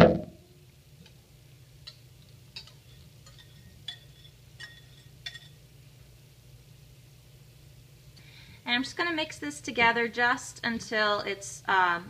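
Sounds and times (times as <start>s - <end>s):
whisk clinking against glass bowl: 2.6s - 5.6s.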